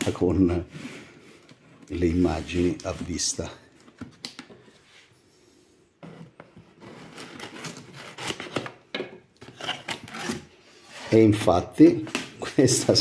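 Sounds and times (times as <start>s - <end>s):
knife slitting packing tape: 7.1s - 8.8s.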